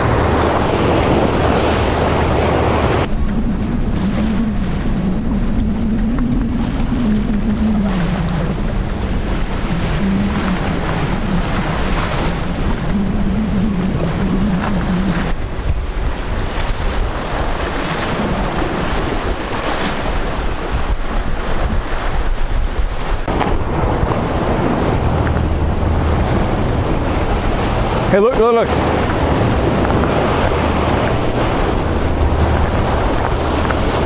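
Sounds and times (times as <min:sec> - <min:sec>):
surf washing against rocks: 0:00.0 - 0:34.0
wind buffeting microphone: 0:00.0 - 0:34.0
low steady hum: 0:23.3 - 0:28.1.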